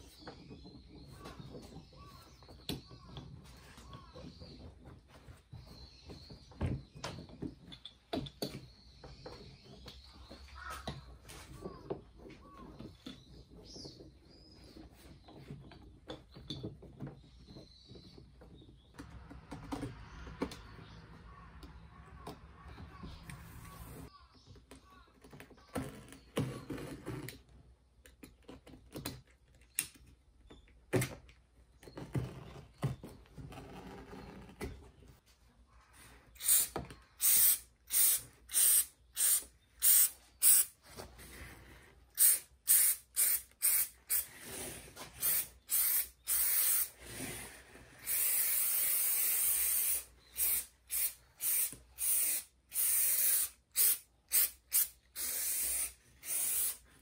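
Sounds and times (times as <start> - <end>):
aerosol can spraying: 36.4 - 40.7, 42.2 - 44.3, 45.2 - 46.9, 48.0 - 56.8.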